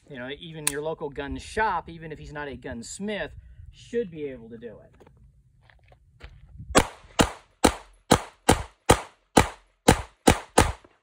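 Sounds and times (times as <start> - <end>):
pistol shots: 6.8 - 10.9.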